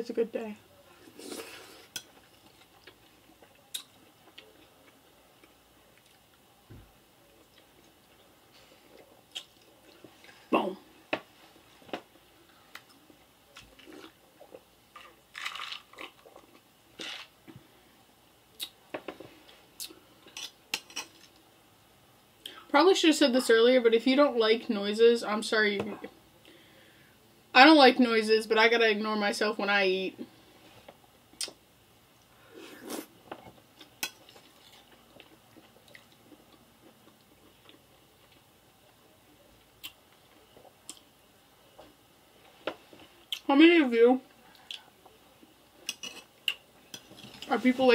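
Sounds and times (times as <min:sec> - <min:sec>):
person chewing food: 0:01.0 - 0:06.5, 0:07.3 - 0:10.4, 0:12.4 - 0:17.6, 0:32.7 - 0:41.1, 0:44.5 - 0:47.5
mouth clicks and smacks: 0:09.3 - 0:09.7, 0:31.4 - 0:31.6
person sipping a drink: 0:32.5 - 0:33.1
fork scraping on plate: 0:45.9 - 0:46.3.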